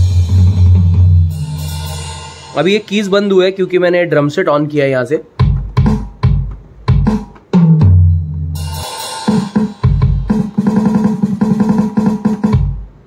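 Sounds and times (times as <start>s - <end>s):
cymbal-like wash: 1.3s - 3.6s
fast run of drum hits: 9.3s - 13.0s.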